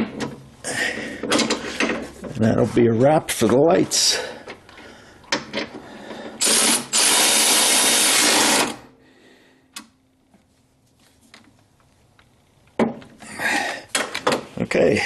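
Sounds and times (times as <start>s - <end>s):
cordless ratchet running: 6.4s - 8.8s.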